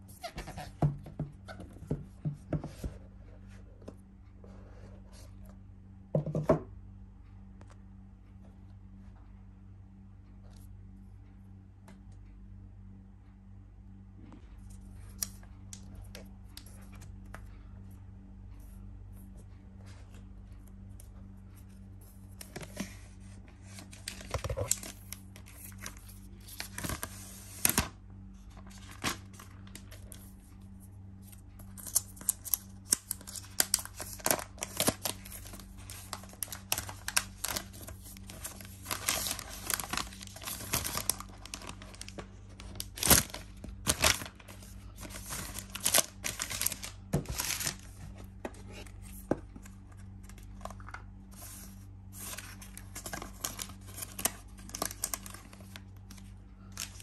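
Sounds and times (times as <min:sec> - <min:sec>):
plastic wrap crackling: 0:31.8 - 0:48.2.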